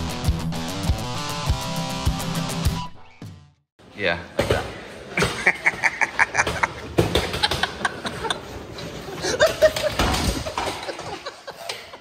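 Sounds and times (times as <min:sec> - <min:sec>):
people laughing and snickering: 0:05.2 - 0:12.0.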